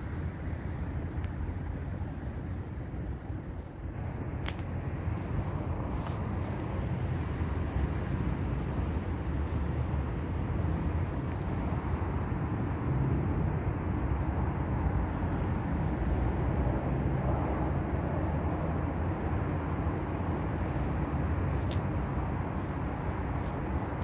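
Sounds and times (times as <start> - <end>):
low outdoor rumble: 0.0 - 24.0.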